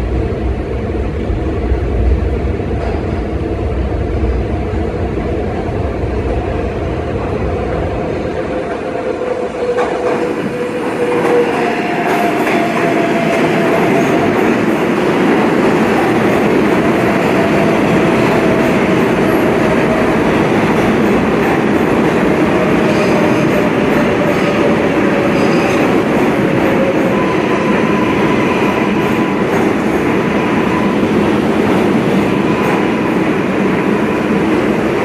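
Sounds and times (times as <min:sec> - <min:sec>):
train wheel and rail noise: 0:00.0 - 0:35.0.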